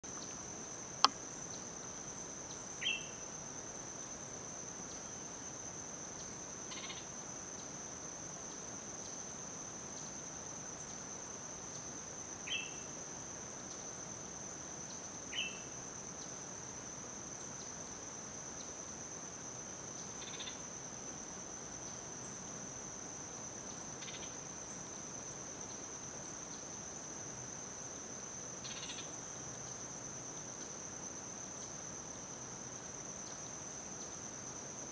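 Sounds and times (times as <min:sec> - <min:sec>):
high-pitched insect drone: 0:06.1 - 0:07.8, 0:19.4 - 0:21.4, 0:23.5 - 0:34.9.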